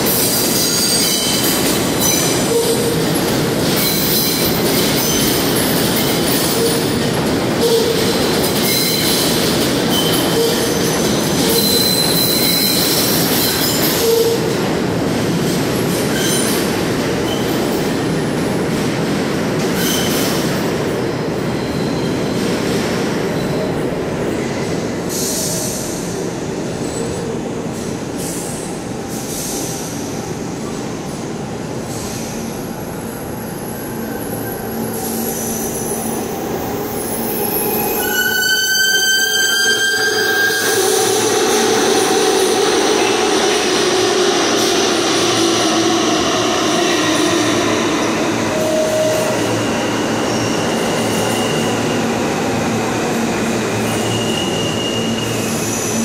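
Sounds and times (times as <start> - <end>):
train wheels rumbling on rails: 0.0 - 56.0
high-pitched wheel squeals: 36.8 - 41.6, 53.8 - 56.0.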